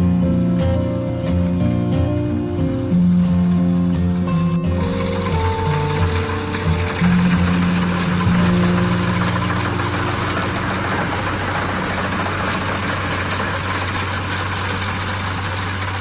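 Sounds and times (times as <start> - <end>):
low engine hum: 1.6 - 16.0
threshing machinery rushing noise: 4.8 - 16.0.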